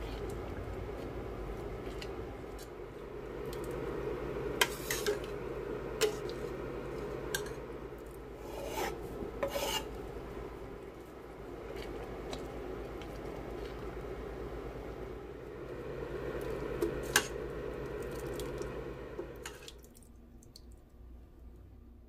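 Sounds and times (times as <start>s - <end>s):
stirring thick soup in a pot: 4.5s - 5.4s, 6.0s - 14.2s.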